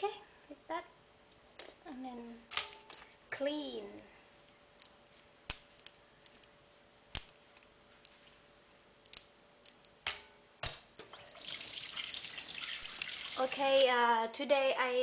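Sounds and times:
faint steady hum: 0:00.0 - 0:15.0
running water: 0:11.1 - 0:13.8.

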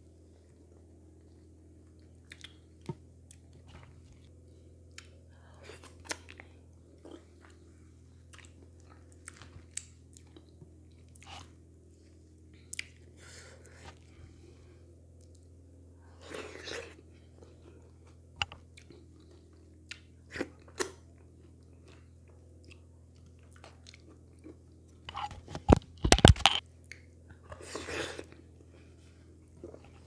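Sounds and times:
faint low hum: 0:00.0 - 0:30.0
chewing and wet mouth clicks: 0:02.0 - 0:02.6.

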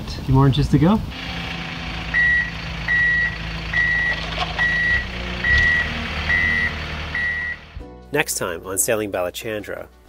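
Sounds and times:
vehicle engine running: 0:01.1 - 0:07.8
reversing alarm beeping: 0:01.3 - 0:07.7.

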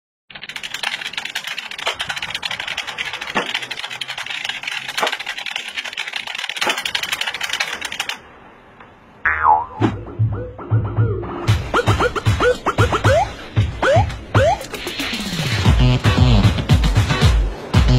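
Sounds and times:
fast typing on computer keyboard: 0:00.3 - 0:08.2.

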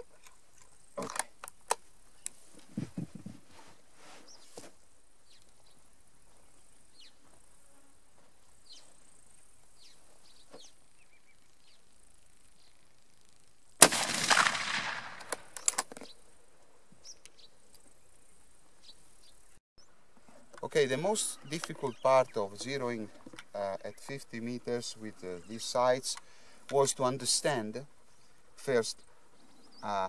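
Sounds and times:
faint high insect hum: 0:00.0 - 0:30.0
rifle shot: 0:13.8 - 0:15.8.

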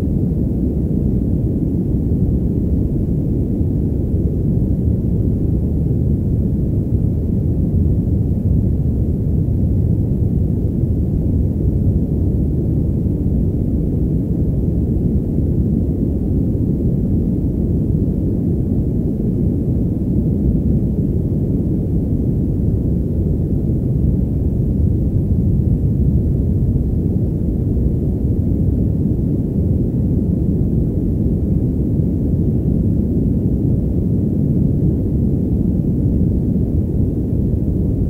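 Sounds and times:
low muffled white noise: 0:00.0 - 0:38.0.

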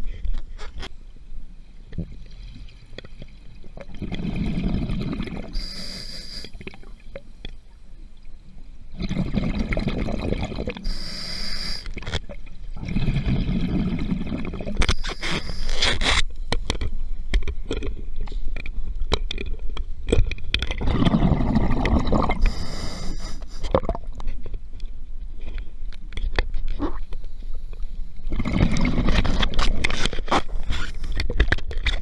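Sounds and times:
regulator hiss on inhale: 0:05.5 - 0:06.8, 0:10.8 - 0:12.0, 0:14.9 - 0:16.0, 0:22.4 - 0:23.7
exhaust bubbles rushing: 0:20.8 - 0:22.4.

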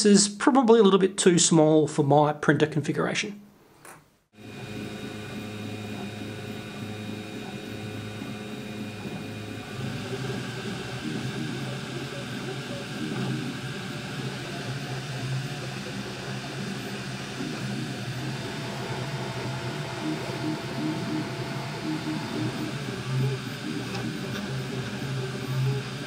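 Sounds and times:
fans whirring: 0:04.4 - 0:26.0
stepper motors humming: 0:04.4 - 0:26.0.

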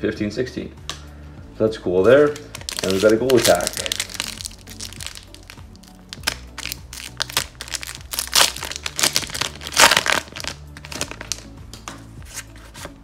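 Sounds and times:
faint background music: 0:00.0 - 0:13.0
plastic wrapper crinkling: 0:02.3 - 0:11.5.

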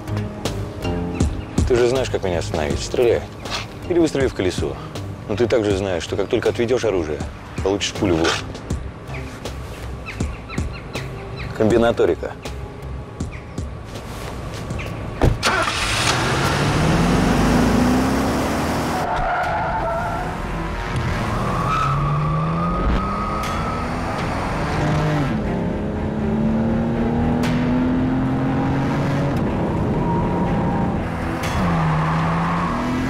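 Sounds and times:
car engine revving hard: 0:15.5 - 0:19.0, 0:21.2 - 0:33.0.

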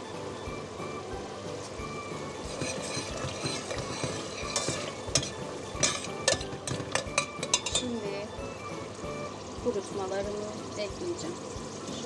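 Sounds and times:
sauce sizzling and bubbling: 0:00.0 - 0:12.0
spoon clinking against pot: 0:02.4 - 0:08.0.

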